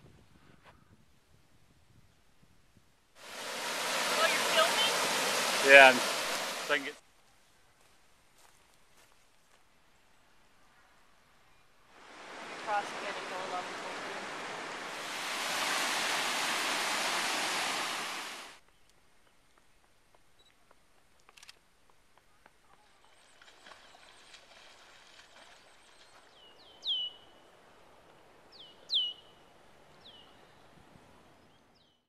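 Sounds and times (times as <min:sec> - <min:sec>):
faint outdoor ambience: 0:03.0 - 0:31.8
bird chirping: 0:25.8 - 0:27.4, 0:28.6 - 0:29.4.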